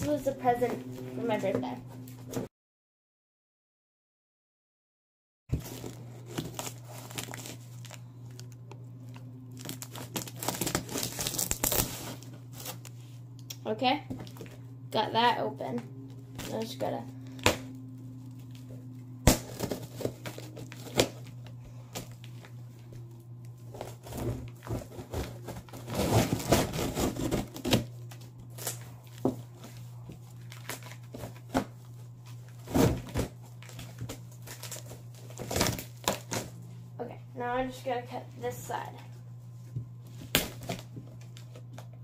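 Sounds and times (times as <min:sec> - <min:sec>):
steady low hum: 0:00.0 - 0:02.5, 0:05.5 - 0:42.0
plastic wrap crinkling: 0:05.5 - 0:13.0, 0:23.6 - 0:36.6.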